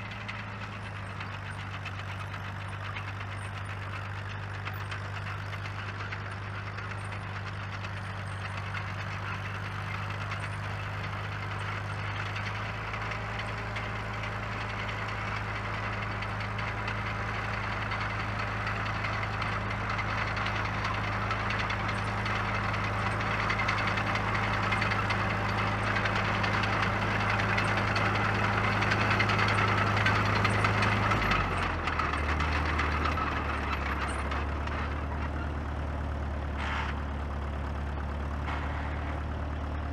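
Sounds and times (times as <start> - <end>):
crawler tractor diesel engine: 0.0 - 39.9.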